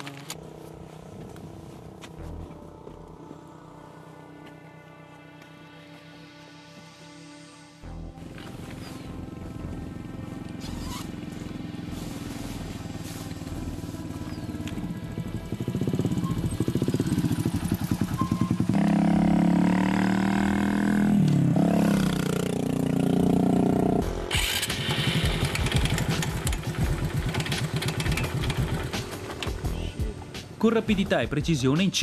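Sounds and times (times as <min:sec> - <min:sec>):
two-stroke motorcycle engine: 0:08.3 - 0:30.0.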